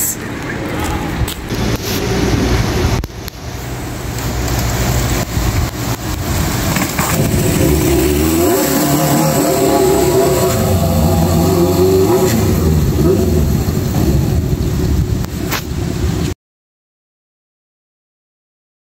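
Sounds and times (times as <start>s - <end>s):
motorcycle engine revving: 4.6s - 15.2s.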